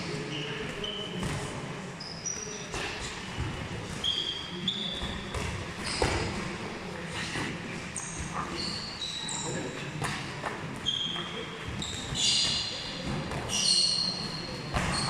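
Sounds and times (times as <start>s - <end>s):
shoes squeaking on floor: 2.0s - 6.3s, 8.0s - 10.2s, 10.8s - 15.0s.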